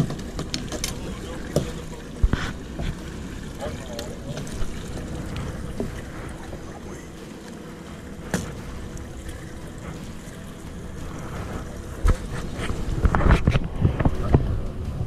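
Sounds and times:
boat engine running: 0.0 - 15.0
water noise: 0.0 - 15.0
wind noise: 8.3 - 15.0.

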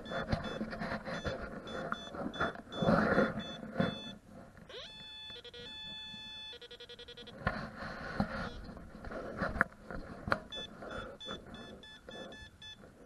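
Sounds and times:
electronic tones at several pitches: 0.0 - 7.4, 10.5 - 12.9
metal detector high beeps: 0.0 - 7.4, 10.5 - 12.8.

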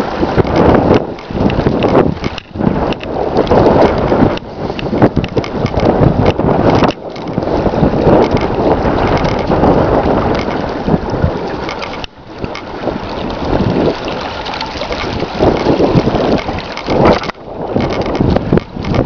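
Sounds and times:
wind buffeting microphone: 0.0 - 19.0
stream running over stones: 8.0 - 19.0.

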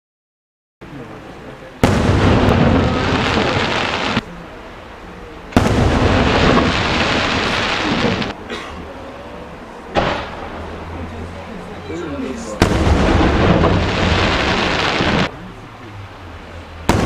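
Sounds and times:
firework shells bursting: 5.6 - 8.4, 12.6 - 15.3.

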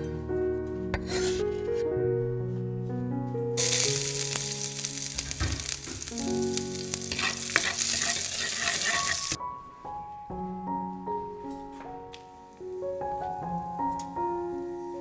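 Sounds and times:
soft background music: 0.0 - 15.0
garlic sizzling in oil: 3.6 - 9.4
spatula stirring in pan: 5.0 - 9.4.

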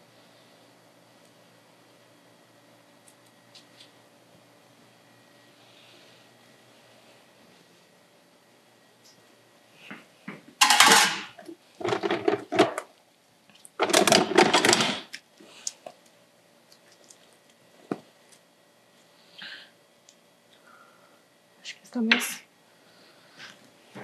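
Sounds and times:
small hard objects clattering: 10.6 - 12.8, 13.8 - 15.2.

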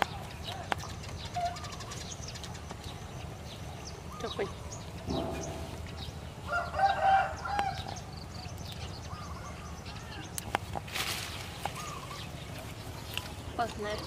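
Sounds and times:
rooster crowing: 6.5 - 7.8.

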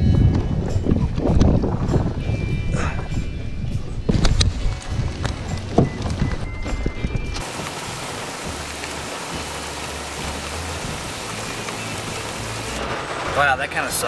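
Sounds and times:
rain pouring onto a lake: 7.4 - 14.0.

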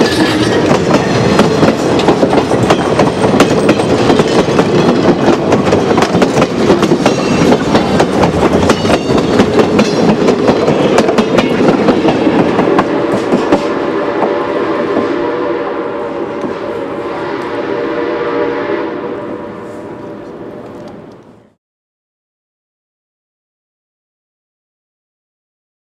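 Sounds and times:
wheels clacking over rail joints: 0.0 - 13.8
train wheels rumbling on rails: 0.0 - 21.6.

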